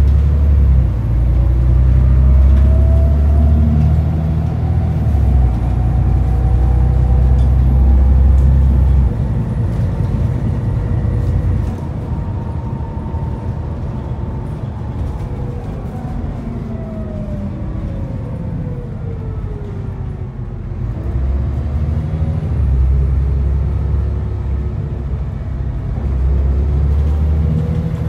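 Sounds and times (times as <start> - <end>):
bus diesel engine drone: 0.0 - 28.0.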